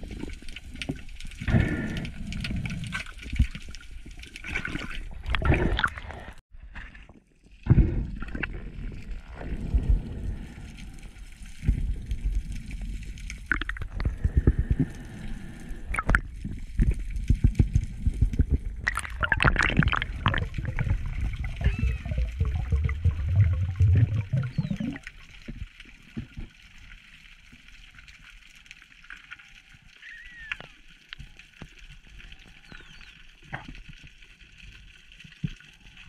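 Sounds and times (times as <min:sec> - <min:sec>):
water sloshing and gurgling: 0:00.0 - 0:29.4
water rushing burst: 0:18.4 - 0:25.0.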